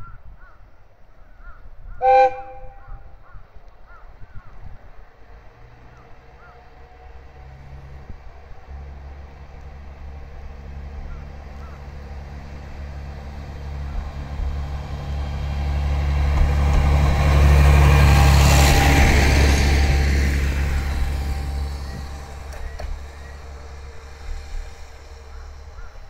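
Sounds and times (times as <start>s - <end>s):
diesel railcar engine drone: 2.0s - 26.0s
train wheels rolling: 8.7s - 26.0s.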